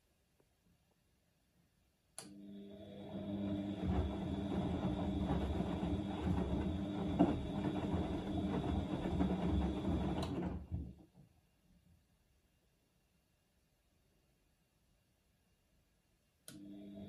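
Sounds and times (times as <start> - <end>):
washing machine tumbling laundry: 2.5 - 11.3.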